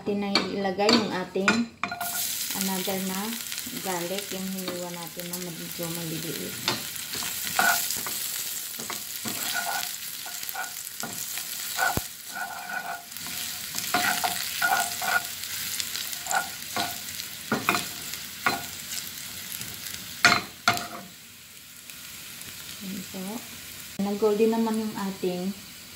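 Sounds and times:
garlic sizzling in hot oil: 1.9s - 25.9s
wooden spatula scraping pan: 8.8s - 15.4s, 16.1s - 17.0s.

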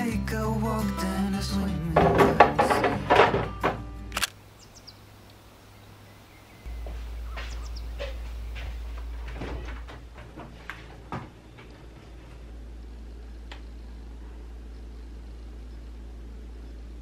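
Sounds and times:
steady low hum: 0.0s - 17.0s
plastic bin set on shelf: 1.8s - 4.0s.

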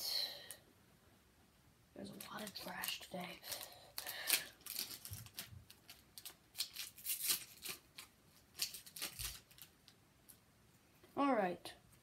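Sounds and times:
foil wrapper crinkling: 2.1s - 10.0s.

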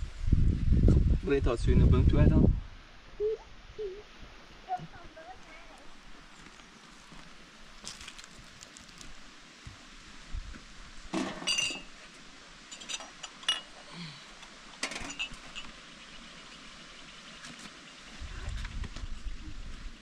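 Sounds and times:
metal dishes clinking: 11.2s - 11.9s, 12.8s - 13.7s, 14.8s - 15.7s.

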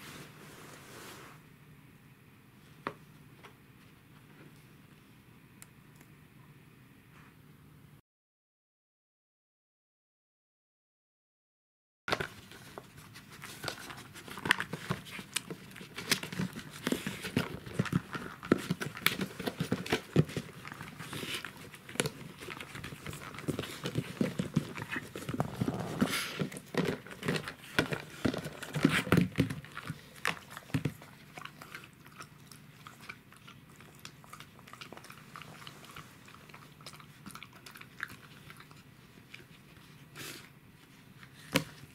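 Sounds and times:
dog chewing plastic boxes: 12.1s - 40.0s.

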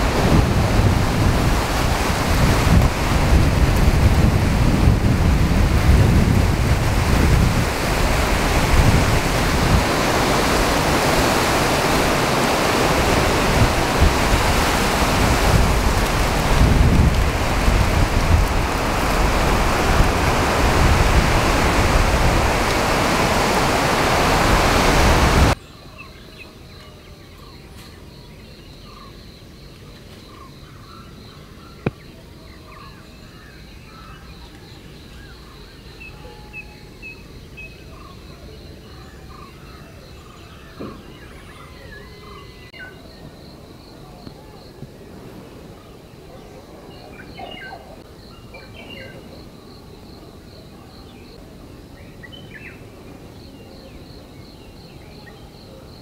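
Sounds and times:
heavy rain: 0.0s - 25.6s
wind buffeting microphone: 0.0s - 25.6s.

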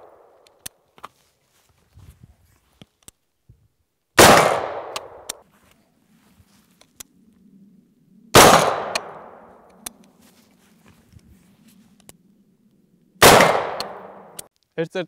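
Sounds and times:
rifle shots with echo: 4.2s - 5.4s, 8.3s - 9.5s, 13.2s - 14.4s.

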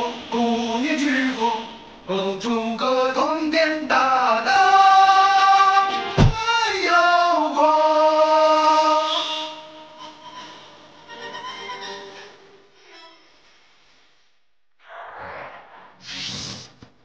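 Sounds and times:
background music with singing: 0.0s - 12.5s
low thump: 6.2s - 6.4s.

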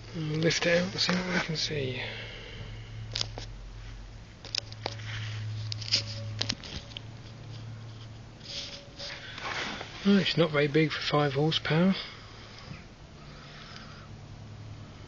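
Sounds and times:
low hum: 0.0s - 15.0s
metal scraping: 4.5s - 10.6s.

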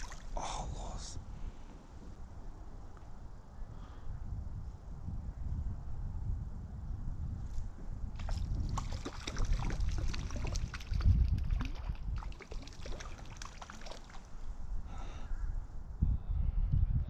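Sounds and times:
fish splashing at water surface: 0.0s - 0.4s, 8.2s - 14.4s.

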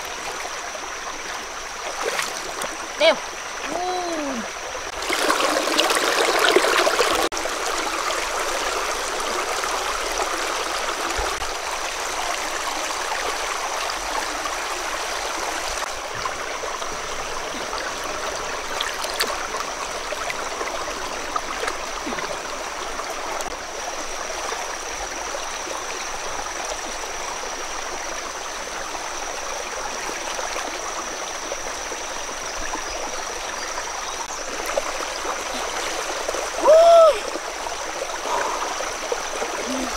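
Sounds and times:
stream water splashing over rocks: 0.0s - 39.9s.

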